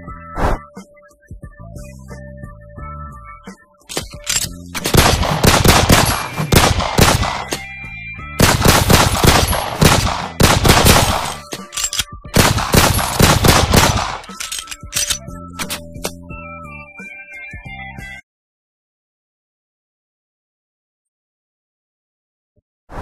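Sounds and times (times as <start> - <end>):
background music: 0.0 - 18.2
automatic gunfire: 4.9 - 7.5, 8.4 - 11.4, 12.4 - 14.3.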